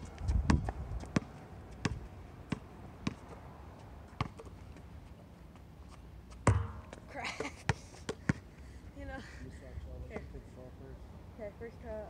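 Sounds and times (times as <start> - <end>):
basketball bouncing on hard court: 0.5 - 3.2, 6.4 - 7.0.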